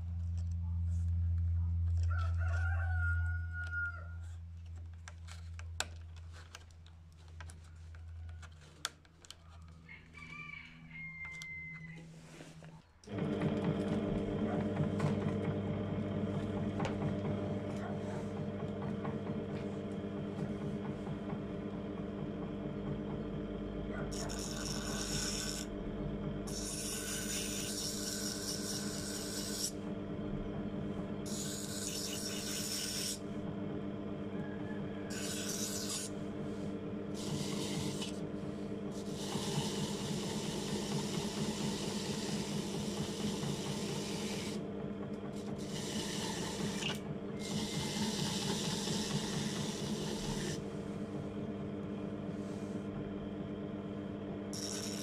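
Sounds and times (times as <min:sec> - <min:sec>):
grinder motor humming: 0:11.2 - 0:55.0
metal blade grinding: 0:24.1 - 0:25.7, 0:26.5 - 0:29.8, 0:31.3 - 0:33.2, 0:35.1 - 0:36.1.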